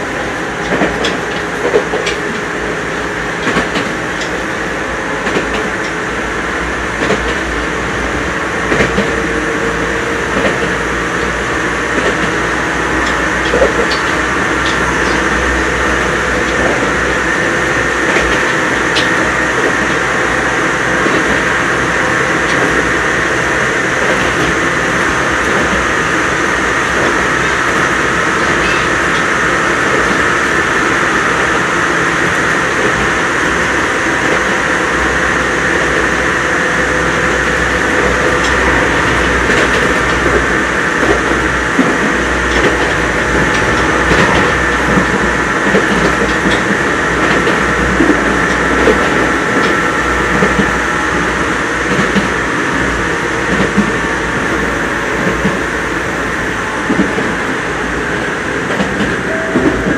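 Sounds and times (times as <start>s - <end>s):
train wheel and rail noise: 0.0s - 59.9s
wheels clicking over rail joints: 13.0s - 15.6s.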